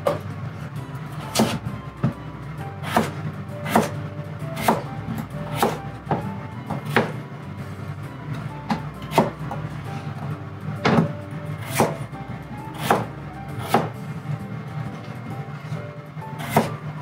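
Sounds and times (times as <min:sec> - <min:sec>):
knife chopping potatoes: 0:01.2 - 0:02.2, 0:02.8 - 0:04.0, 0:04.6 - 0:07.2, 0:08.7 - 0:09.6, 0:10.9 - 0:12.0, 0:12.7 - 0:14.0, 0:16.3 - 0:16.8.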